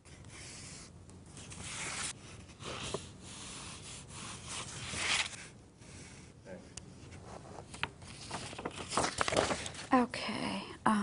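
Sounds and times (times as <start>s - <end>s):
scratchy strokes on paper: 0.0s - 7.4s.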